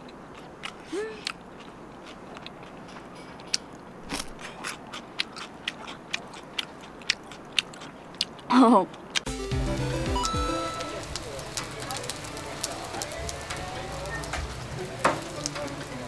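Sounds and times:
crunching of chewed fried batter: 0.0s - 9.3s
person humming: 0.9s - 1.2s.

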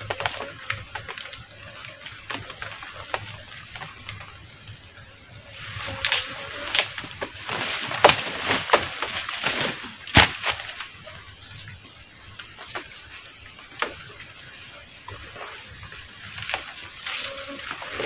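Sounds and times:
dry leaves crackling and rustling: 5.6s - 11.4s, 15.6s - 18.0s.

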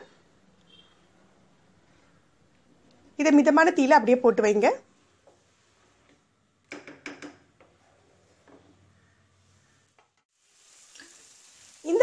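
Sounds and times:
wooden spatula scraping a pan: 7.6s - 10.1s.

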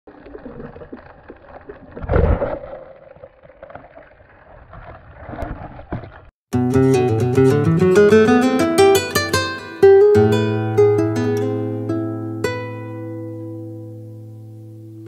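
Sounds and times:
muffled underwater rushing water: 0.1s - 6.3s.

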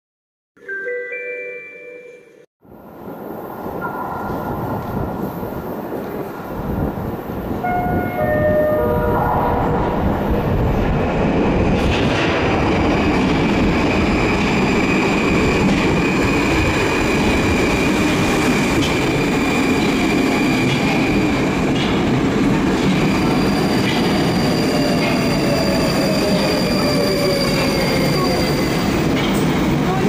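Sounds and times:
train wheels rumbling on rails: 2.7s - 30.0s
tone: 7.7s - 9.9s.

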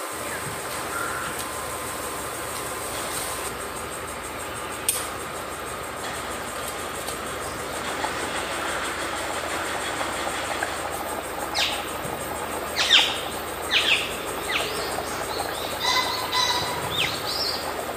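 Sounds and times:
curry boiling hard in pot: 6.8s - 17.9s
bird chirping: 11.4s - 17.8s.

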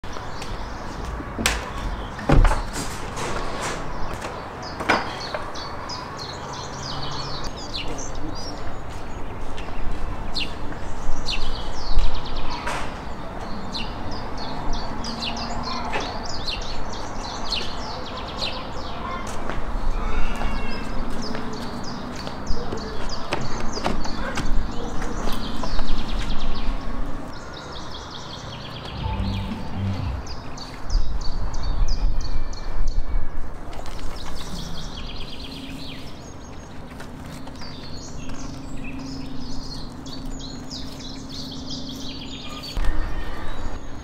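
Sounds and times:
small birds chirping: 34.0s - 42.8s.

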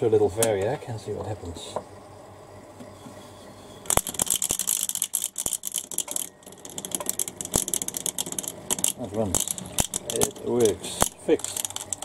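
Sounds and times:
pump motor rattling clatter: 3.9s - 12.0s.

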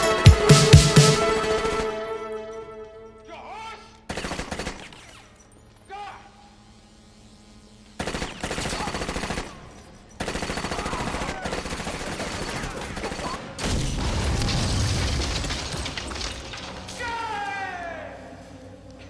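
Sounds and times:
automatic rifle fire: 4.1s - 5.2s, 8.0s - 16.8s.

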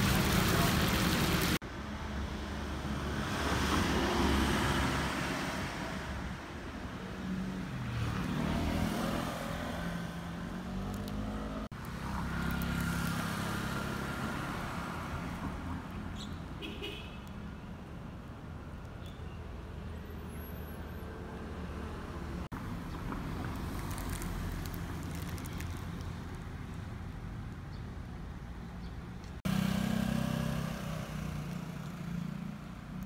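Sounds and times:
motor vehicles passing: 7.0s - 16.6s, 29.0s - 33.0s.

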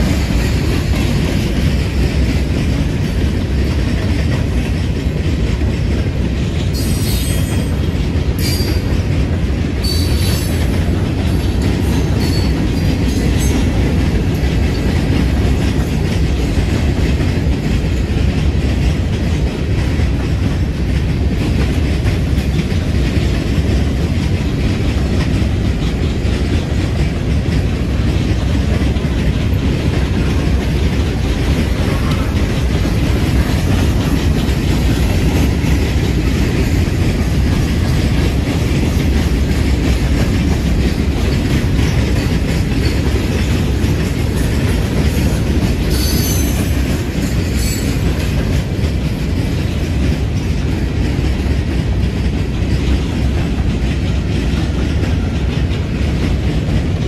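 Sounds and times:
freight train wheels rumbling: 0.0s - 57.0s
high-pitched wheel squeals: 9.8s - 10.5s, 45.9s - 46.7s.

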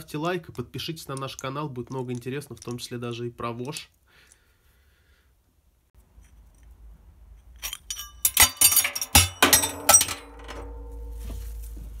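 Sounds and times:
metal part clanking into scrap: 7.4s - 11.0s.

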